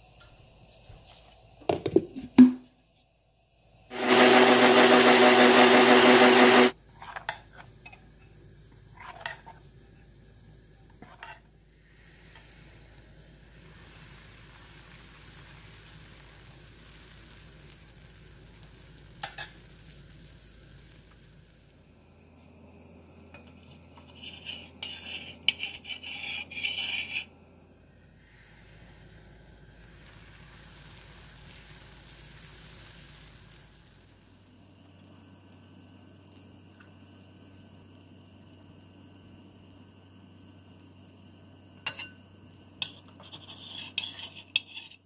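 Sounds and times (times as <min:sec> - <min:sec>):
batter hissing on hot pan: 0:00.0 - 0:02.4, 0:03.2 - 0:06.8, 0:10.3 - 0:45.0
electric mixer-grinder running: 0:03.9 - 0:06.8
spoon clinking on steel bowl: 0:41.8 - 0:42.2.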